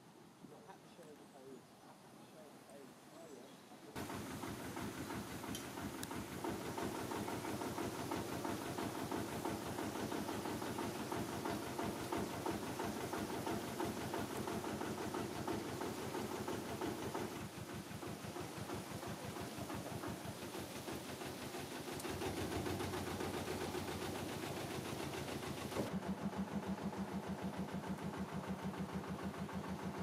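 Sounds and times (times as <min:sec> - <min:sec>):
diesel engine idling: 0:04.0 - 0:30.0.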